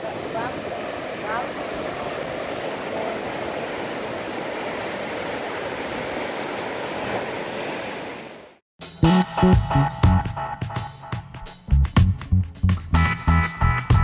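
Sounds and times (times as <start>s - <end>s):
surf waves breaking: 0.0s - 8.6s
guitar music: 8.8s - 14.0s.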